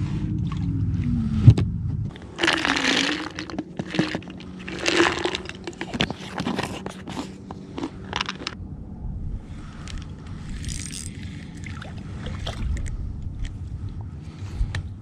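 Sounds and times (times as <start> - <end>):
plastic jar crackling and rattling: 2.1 - 8.6.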